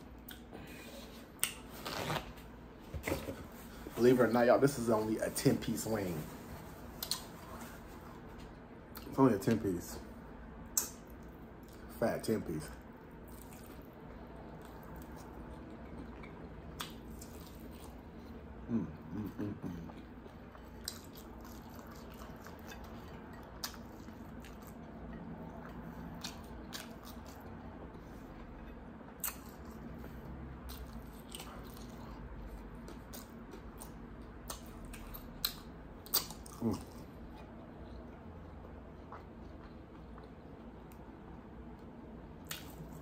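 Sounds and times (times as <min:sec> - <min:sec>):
sharp mouth clicks and smacks: 0:10.7 - 0:11.4, 0:42.4 - 0:43.0
wet chewing and biting: 0:19.8 - 0:38.0.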